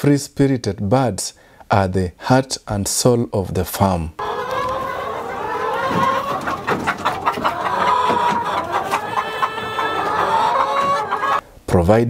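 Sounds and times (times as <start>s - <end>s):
hens clucking: 4.2s - 11.4s.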